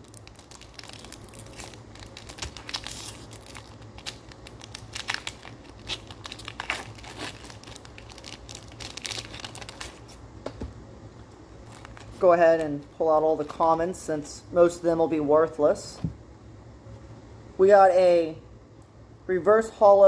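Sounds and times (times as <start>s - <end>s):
foil wrapper tearing and crinkling: 0.0s - 10.2s, 11.6s - 12.2s.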